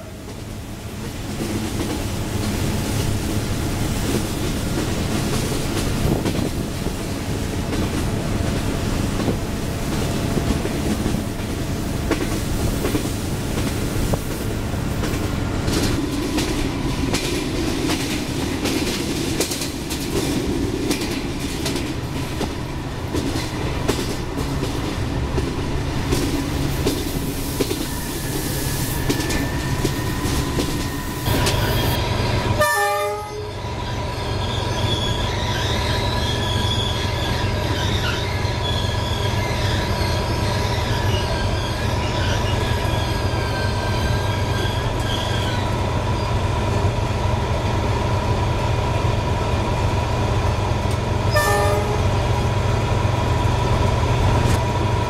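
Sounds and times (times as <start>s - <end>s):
train rumbling: 0.0s - 55.0s
train wheel squeal: 26.8s - 46.9s
train horn blasts: 32.6s - 33.6s, 51.3s - 52.2s.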